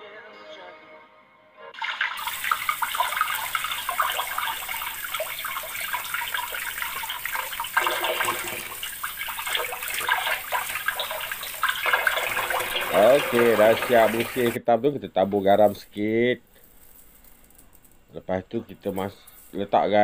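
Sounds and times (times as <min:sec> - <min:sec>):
faint background music: 0:00.0 - 0:01.8
tap water running into a sink: 0:01.8 - 0:14.6.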